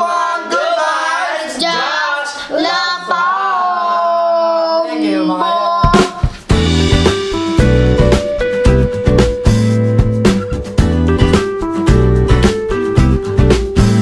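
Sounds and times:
voices singing a chant: 0:00.0 - 0:06.2.

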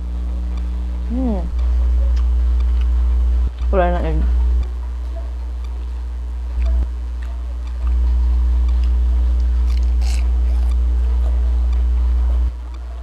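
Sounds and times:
loud low hum: 0:00.0 - 0:13.0
person chewing: 0:06.6 - 0:11.0
crunchy bite: 0:08.7 - 0:10.8.

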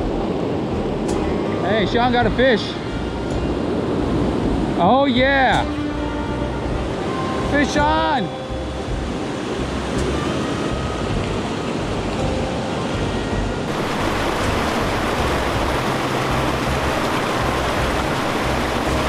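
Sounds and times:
river rapids roaring: 0:06.0 - 0:19.0.

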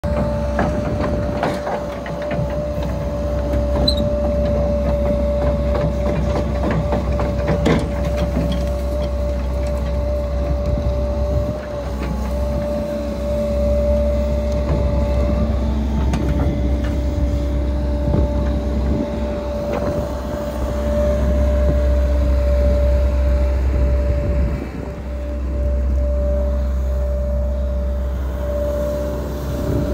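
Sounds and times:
metal clanks and knocks: 0:00.0 - 0:10.6
constant mechanical whine: 0:00.0 - 0:29.9
excavator engine rumble: 0:00.0 - 0:29.9.

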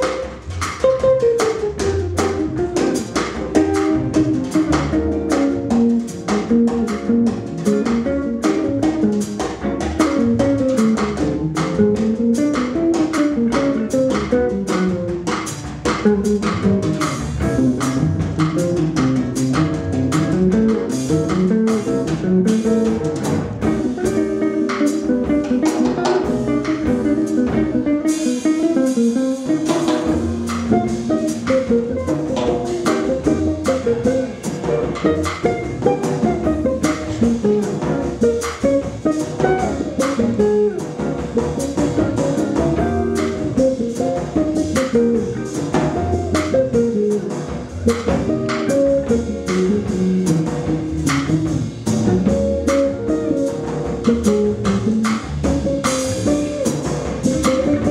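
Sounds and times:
double bass: 0:00.0 - 0:57.9
drum kit with cymbals: 0:00.0 - 0:57.9
jazz guitar melodic lines: 0:00.0 - 0:57.9.

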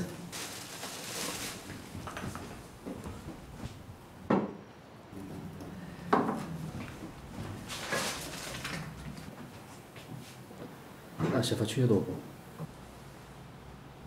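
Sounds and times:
household items being handled: 0:00.0 - 0:03.9, 0:06.0 - 0:10.4
sharp knocks in cupboards: 0:04.3 - 0:04.6.

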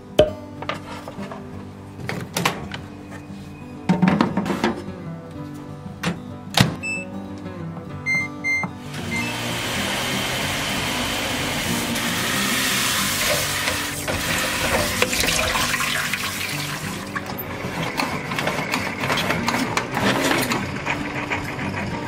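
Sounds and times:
tap water running onto lettuce: 0:11.6 - 0:17.2.

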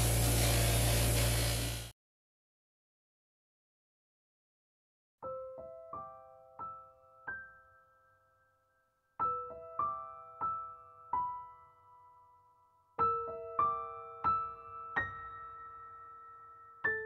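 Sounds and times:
slow solo piano: 0:05.2 - 0:17.0.

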